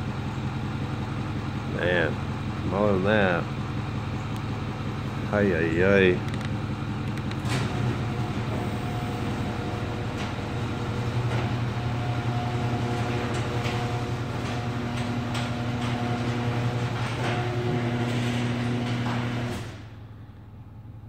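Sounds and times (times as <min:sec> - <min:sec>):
garage door opener humming: 0:00.0 - 0:21.0
clicks and rattles: 0:06.2 - 0:07.6.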